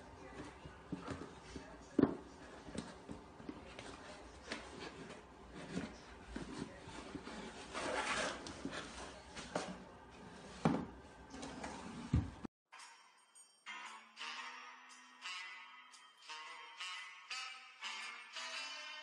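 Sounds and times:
cardboard box scraping on floor: 3.8 - 12.4.

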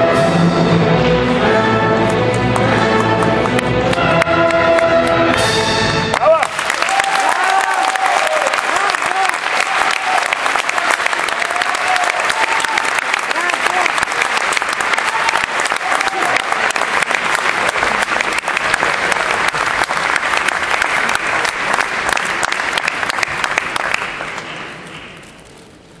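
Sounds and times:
audience applauding: 2.0 - 25.6.

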